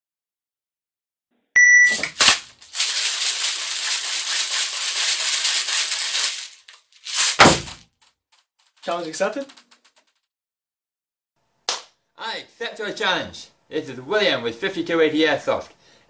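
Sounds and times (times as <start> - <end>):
short beep: 1.6 - 2.1
rattle of bbs loaded into magazine: 1.9 - 10.3
loud thump: 7.4 - 7.8.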